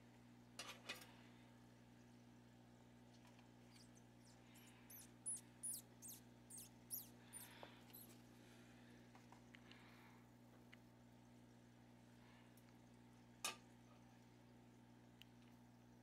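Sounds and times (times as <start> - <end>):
baby gerbil squeaking: 3.7 - 8.2.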